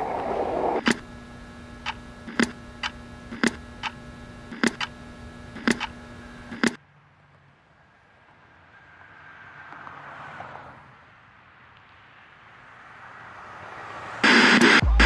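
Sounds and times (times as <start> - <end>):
steady hum: 0.0 - 6.8, 14.2 - 15.0
clock ticking: 1.8 - 4.9, 5.6 - 5.9.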